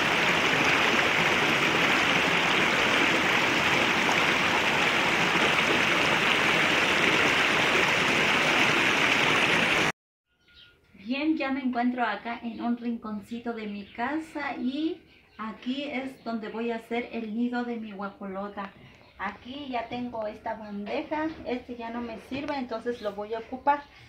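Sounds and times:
creek running: 0.0 - 9.9.

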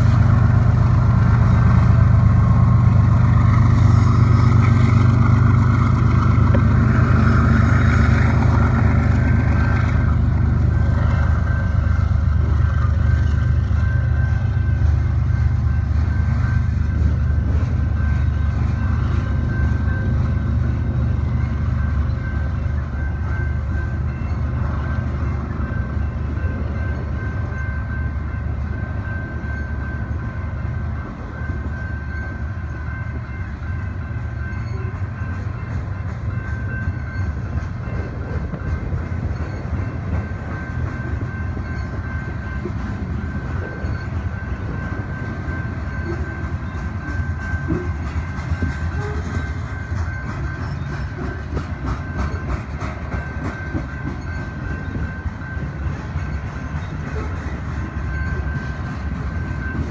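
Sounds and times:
train wheels rumbling on rail: 0.0 - 59.9
wheels clicking over rail joints: 34.3 - 59.9.

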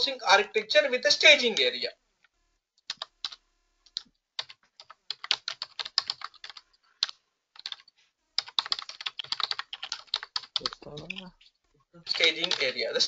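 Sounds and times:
typing on keyboard: 2.8 - 11.4, 12.1 - 13.0.

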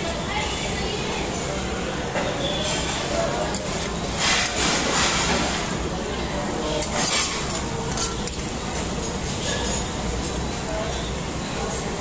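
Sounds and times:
utensils clinking on metal dishes: 2.2 - 5.8, 6.6 - 11.1.

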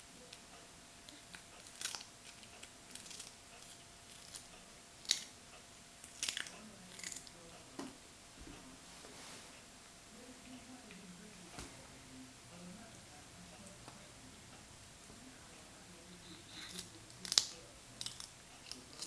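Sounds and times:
cat crunching cucumber: 1.2 - 5.3, 6.0 - 7.4, 16.5 - 19.0.

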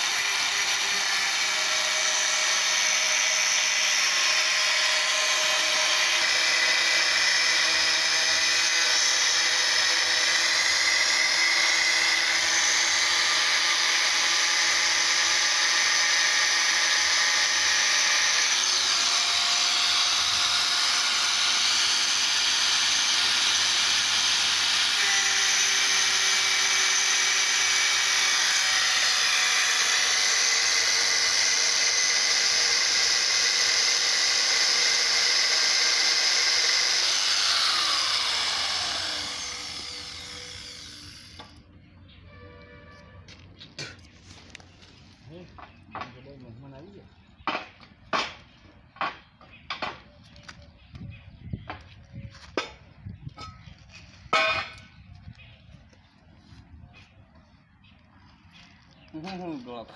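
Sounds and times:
angle grinder cutting steel: 0.0 - 41.6.

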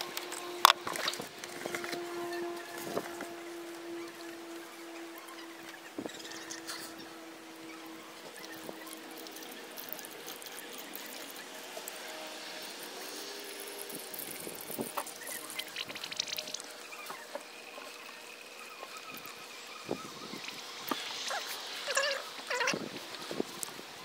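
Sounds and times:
liquid trickling from a jug: 8.2 - 22.6.

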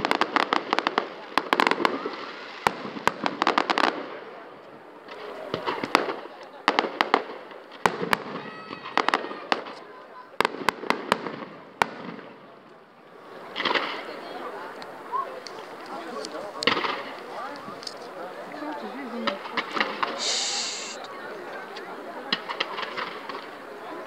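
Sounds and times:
fireworks bangs: 0.0 - 4.4, 5.0 - 9.8, 10.4 - 12.4, 16.6 - 17.4, 19.3 - 21.0, 22.3 - 23.6
fireworks crackling: 0.0 - 21.1, 22.3 - 24.0.

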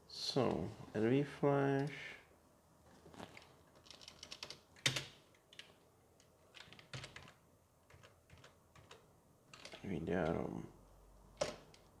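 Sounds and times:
keyboard typing: 3.3 - 10.4.

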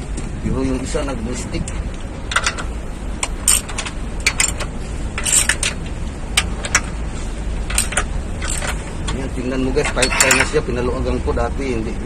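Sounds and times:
wrench clicking on bolts: 2.3 - 7.0, 7.6 - 9.2, 9.8 - 10.6.

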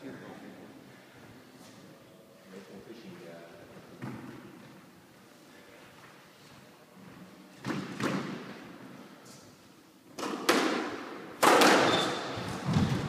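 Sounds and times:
squash ball hits echoing: 7.6 - 8.6, 10.2 - 13.0.

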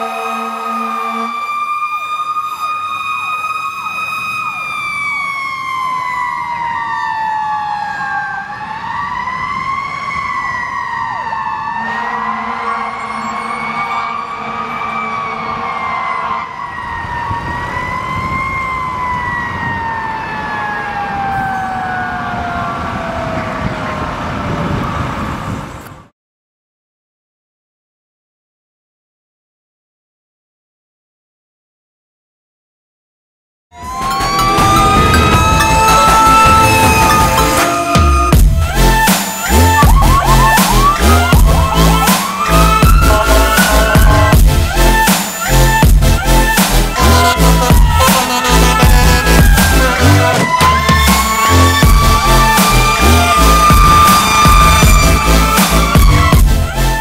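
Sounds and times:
air horn blasts: 0.0 - 1.6, 11.7 - 16.5, 33.8 - 57.0
mechanical siren wailing: 0.0 - 25.1, 33.8 - 57.0.

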